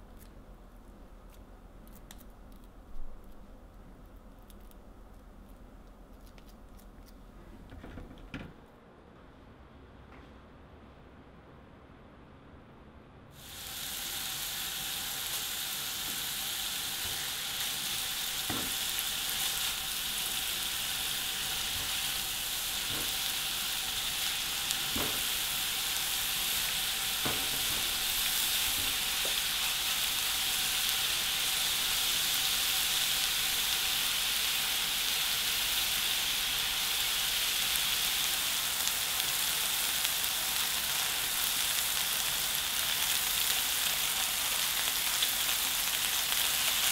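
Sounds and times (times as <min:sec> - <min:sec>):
peppers sizzling in frying pan: 0:13.4 - 0:46.9.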